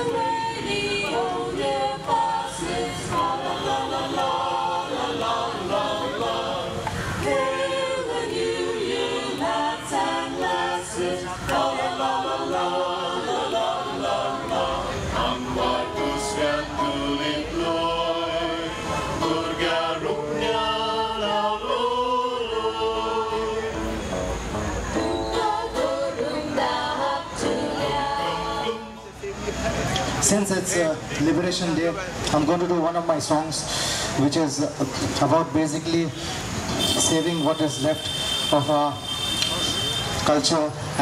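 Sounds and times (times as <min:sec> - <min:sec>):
choir singing: 0:00.0 - 0:29.2.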